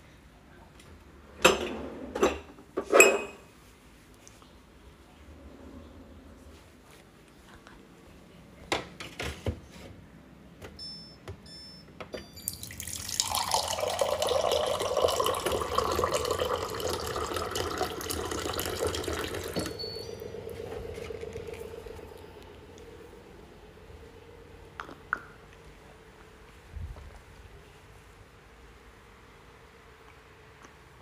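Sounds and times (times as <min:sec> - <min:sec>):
steady low hum: 0:03.6 - 0:08.8, 0:10.1 - 0:31.0
water dispenser beeps: 0:10.8 - 0:22.2
water pouring into a mug: 0:12.5 - 0:22.2.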